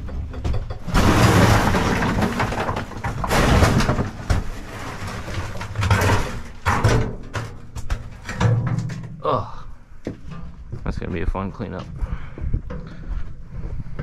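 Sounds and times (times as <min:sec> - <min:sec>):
rubble clattering onto plywood floor: 0:00.0 - 0:09.2.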